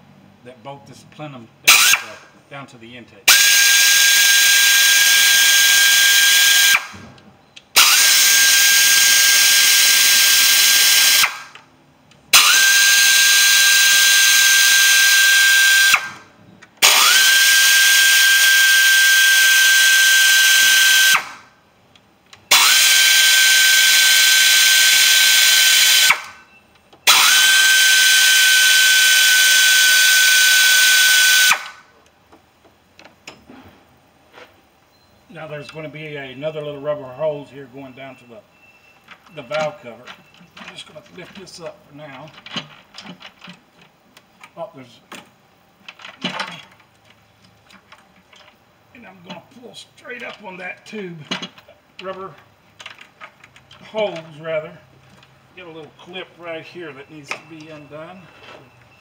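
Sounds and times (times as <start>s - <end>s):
air ratchet whining: 1.7s - 2.2s, 3.3s - 7.0s, 7.6s - 11.6s, 12.3s - 16.2s, 16.8s - 21.4s, 22.4s - 31.8s.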